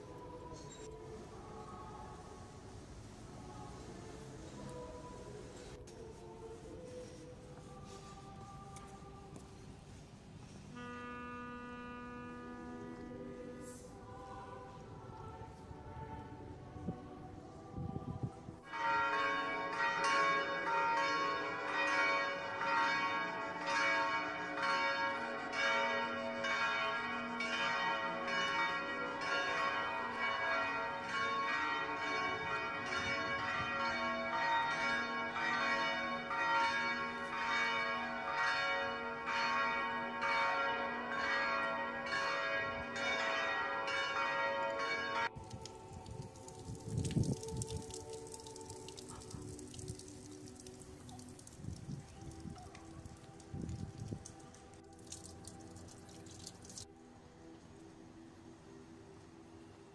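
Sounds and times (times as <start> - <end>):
church bells ringing: 18.6 - 46.3.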